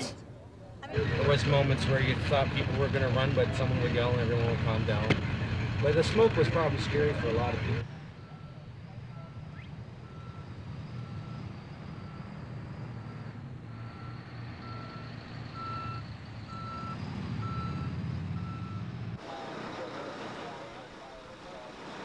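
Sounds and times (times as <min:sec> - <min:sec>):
engine low rumble: 0:00.0 - 0:22.0
reversing alarm beeping: 0:06.4 - 0:21.6.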